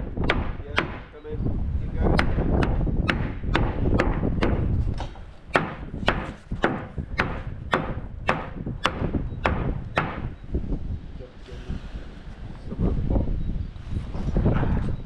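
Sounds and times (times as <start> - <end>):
wind rumble on microphone: 0.0 - 15.0
hammer blows: 2.1 - 10.4.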